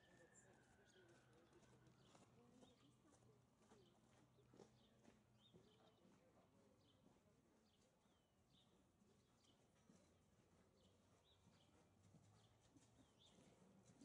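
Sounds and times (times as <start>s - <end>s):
small birds chirping: 0.0s - 14.0s
horse hoofbeats on sand: 1.0s - 6.4s, 9.1s - 14.0s.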